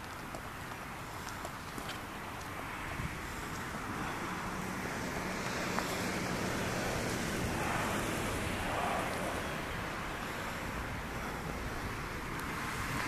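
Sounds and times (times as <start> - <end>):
wind on microphone: 2.7 - 13.0.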